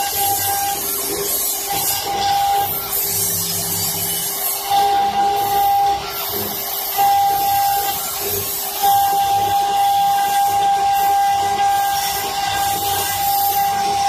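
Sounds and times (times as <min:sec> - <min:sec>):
lathe cutter shaving wood: 0:00.0 - 0:14.0
high whistling tone: 0:06.8 - 0:14.0.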